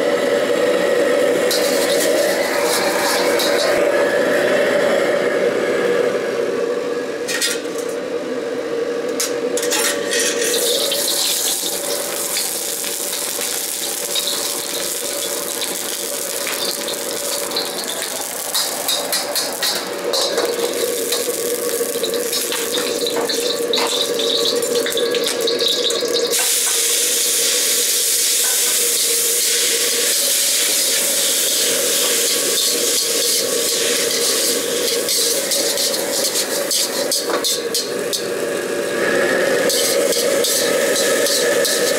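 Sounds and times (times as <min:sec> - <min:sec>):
gas burner roaring and hissing: 0:00.0 - 0:41.9
metal ladle scraping a wok: 0:09.8 - 0:25.2, 0:32.6 - 0:38.3, 0:39.6 - 0:41.9.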